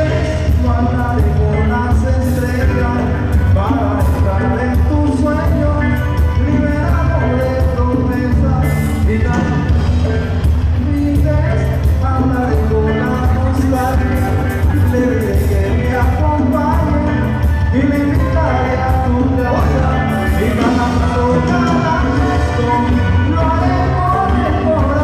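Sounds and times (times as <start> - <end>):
lead singer singing: 0.0 - 25.0
live band playing: 0.0 - 25.0.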